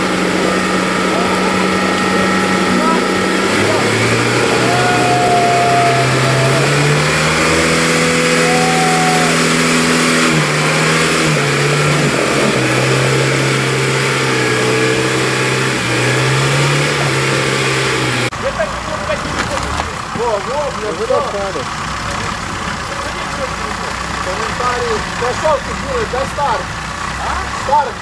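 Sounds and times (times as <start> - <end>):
thin high whine: 0.0 - 6.5
off-road vehicle engine revving: 0.0 - 28.0.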